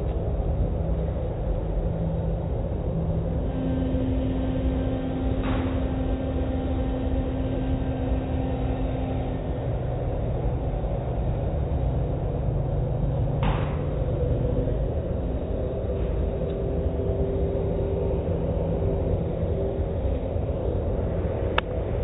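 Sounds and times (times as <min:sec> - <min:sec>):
machinery rumble and hum: 0:00.0 - 0:22.0.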